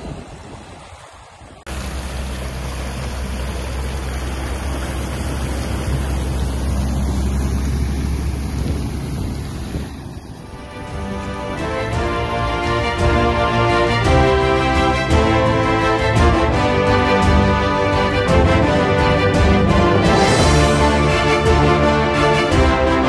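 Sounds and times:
vehicle engine rumble: 0.0s - 13.7s
water rushing and splashing: 0.0s - 23.0s.

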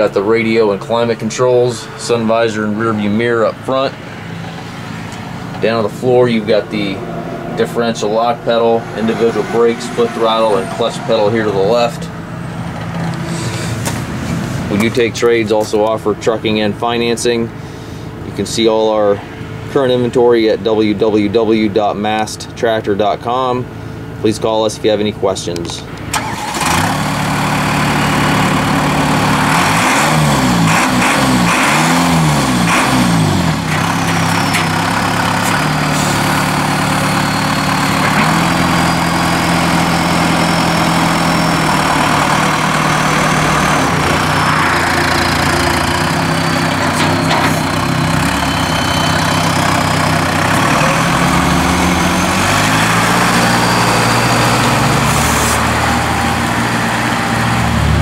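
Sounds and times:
tractor diesel engine running: 0.0s - 58.0s.

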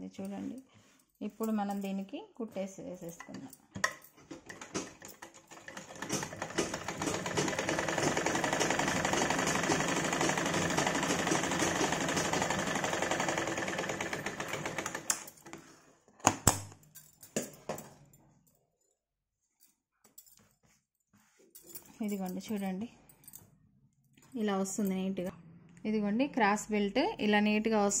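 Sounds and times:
sewing machine rattling: 4.3s - 15.3s.

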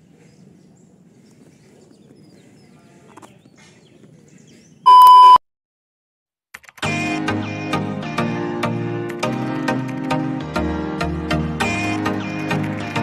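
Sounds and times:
high test tone beep: 4.9s - 5.4s.

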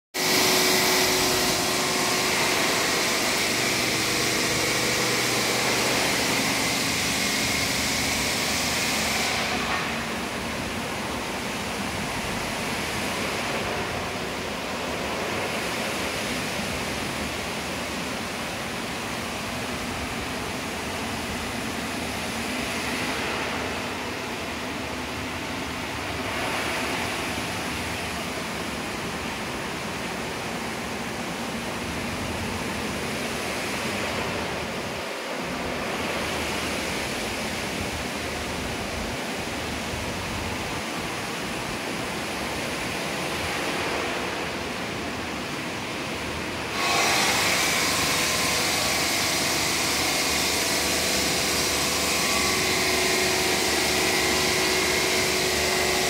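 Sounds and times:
machine hum with steady tones: 0.2s - 56.0s.

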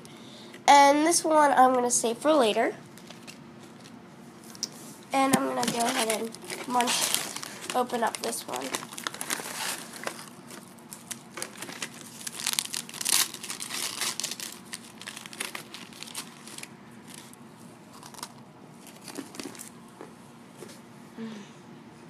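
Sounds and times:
foil wrapper crinkling: 2.9s - 4.6s, 5.2s - 19.7s.

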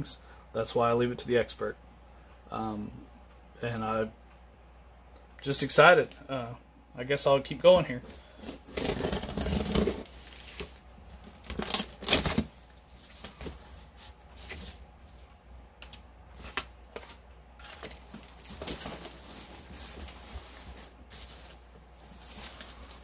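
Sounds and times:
cardboard flaps rustling: 7.9s - 15.3s, 16.3s - 23.0s
packing tape ripping: 8.3s - 12.7s.

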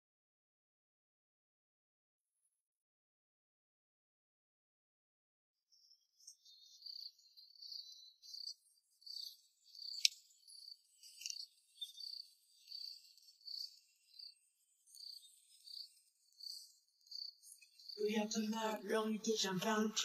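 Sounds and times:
insects chirping: 5.7s - 20.0s.

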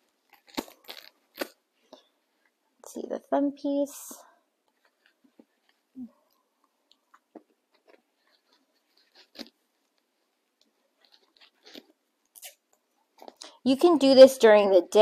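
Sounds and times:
velcro straps rustling: 0.2s - 2.1s, 7.1s - 13.4s.

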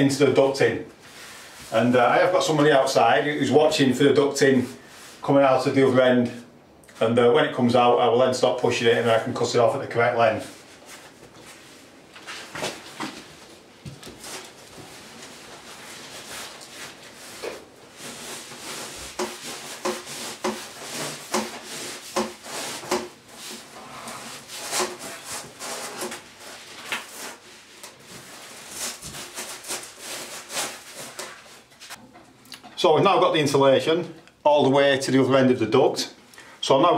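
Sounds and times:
foam insulation scraping on pipe: 14.2s - 32.0s.

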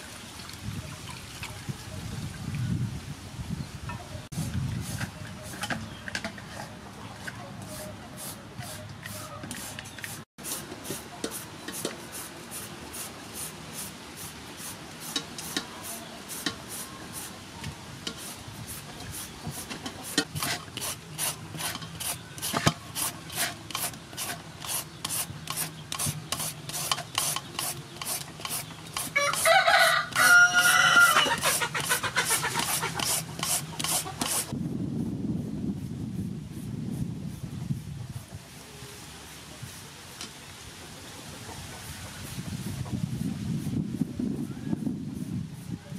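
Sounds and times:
rooster crowing: 29.2s - 31.4s.

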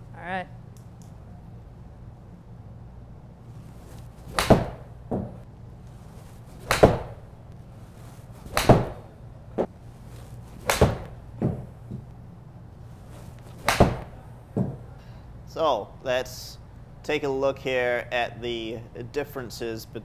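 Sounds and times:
golf club striking ball: 4.3s - 5.4s, 6.6s - 7.3s, 8.5s - 9.7s, 10.6s - 12.0s, 13.6s - 14.8s
ball thudding into screen: 8.5s - 9.0s, 10.6s - 12.1s, 13.6s - 14.8s.

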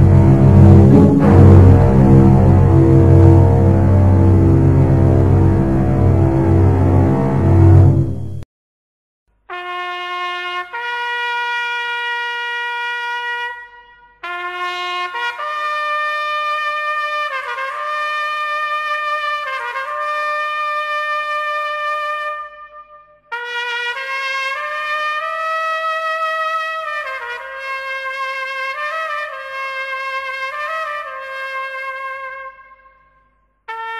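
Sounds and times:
solo trumpet slow melody: 0.0s - 8.4s, 9.5s - 33.9s.

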